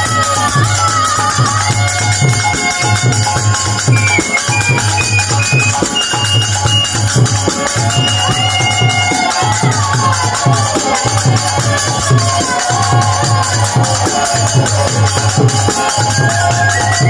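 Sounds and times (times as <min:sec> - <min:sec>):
barrel drums beat: 0:00.0 - 0:17.0
jingling percussion: 0:00.0 - 0:17.0.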